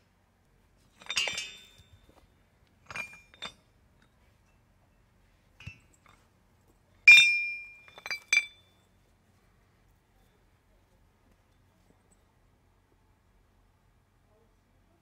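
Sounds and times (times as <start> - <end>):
iron gears clinking: 1.0 - 1.9.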